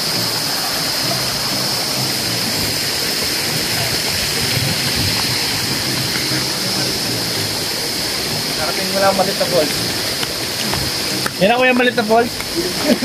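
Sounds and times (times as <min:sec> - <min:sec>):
high-pitched whine: 0:00.0 - 0:13.0
stream running over rocks: 0:00.0 - 0:13.0.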